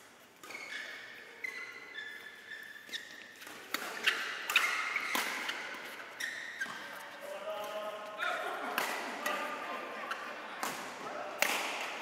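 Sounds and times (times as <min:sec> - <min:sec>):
shoe squeaks on court: 0:00.4 - 0:06.9
racket hitting shuttlecock: 0:02.9 - 0:06.9, 0:08.6 - 0:09.5, 0:10.6 - 0:12.0.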